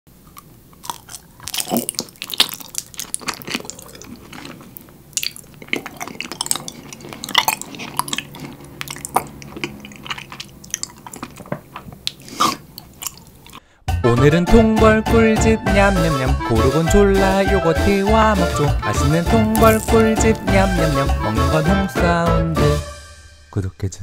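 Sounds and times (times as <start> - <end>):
chewing honeycomb: 0.2 - 13.6, 18.9 - 21.1.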